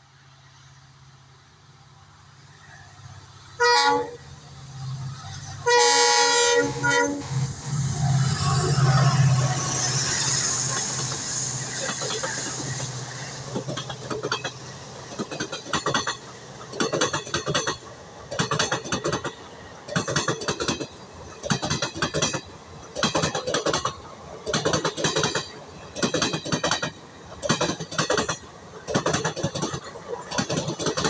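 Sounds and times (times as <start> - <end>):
diesel locomotive engine: 0.0 - 31.0
train wheels clattering over rail joint: 7.7 - 31.0.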